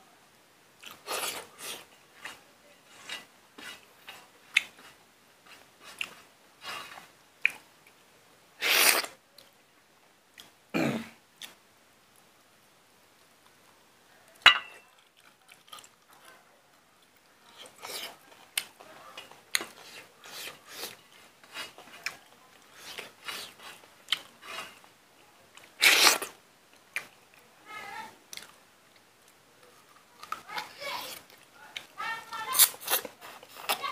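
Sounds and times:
chewing and lip-smacking: 3.0 - 4.9, 5.5 - 6.2, 14.9 - 16.3.

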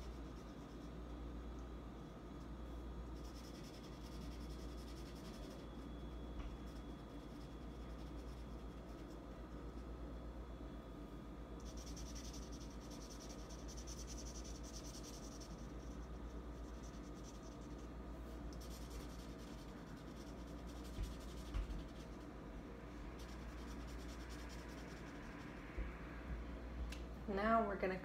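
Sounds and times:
marker scratching on paper: 3.1 - 9.2, 11.6 - 17.9, 18.5 - 22.3.

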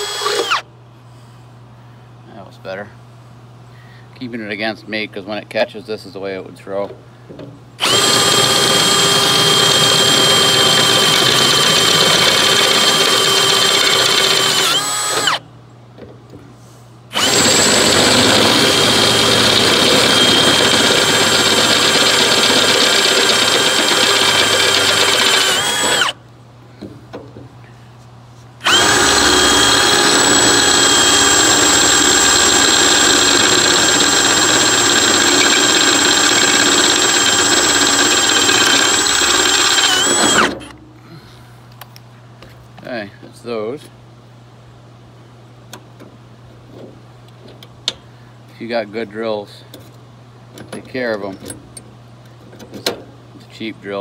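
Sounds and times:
cordless drill boring through metal: 0.0 - 0.6, 7.8 - 15.4, 17.1 - 26.2, 28.6 - 40.6.

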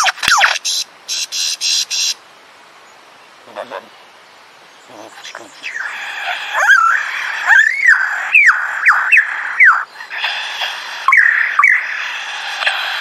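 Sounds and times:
lyrebird whistled song: 5.6 - 13.0.

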